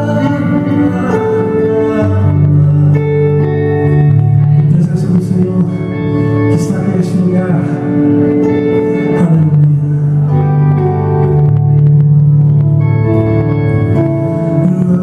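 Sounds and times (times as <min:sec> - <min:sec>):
man singing into a microphone: 0:00.0 - 0:11.8, 0:13.7 - 0:15.0
electric guitar: 0:00.0 - 0:15.0
sustained keyboard chords: 0:00.0 - 0:15.0.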